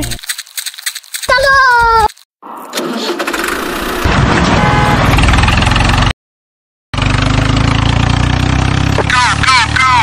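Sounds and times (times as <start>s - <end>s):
diesel tractor engine running: 2.4s - 6.1s, 7.0s - 10.0s.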